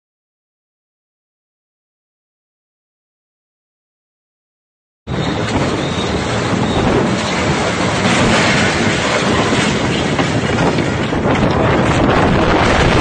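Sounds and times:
storm wind on microphone: 5.1 - 13.0.

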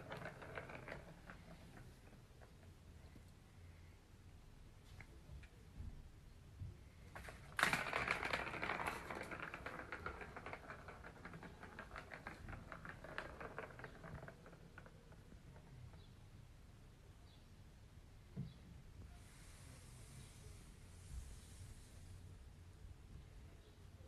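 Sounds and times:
ball rattling around plastic track: 0.0 - 2.8, 7.1 - 16.2.

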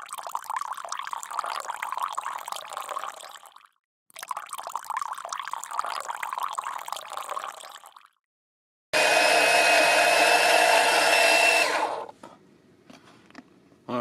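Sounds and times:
fluid gurgling through hose: 0.0 - 8.2
electric pump whining: 9.0 - 12.1.

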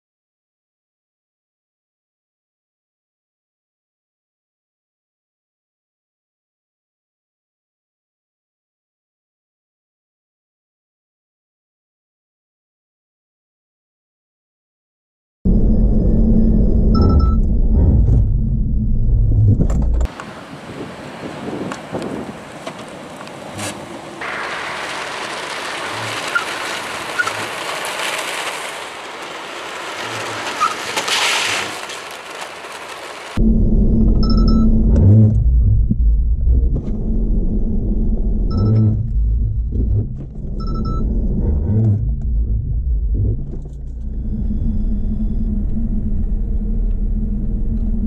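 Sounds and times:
car road and wind noise: 15.5 - 48.0.

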